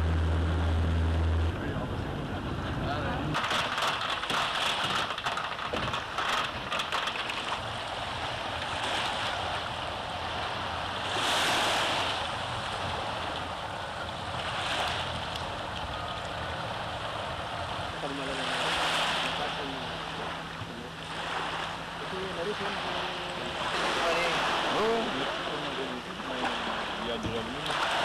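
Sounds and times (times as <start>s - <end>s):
small waves washing onto beach: 1.7s - 28.0s
crackle: 3.2s - 9.8s.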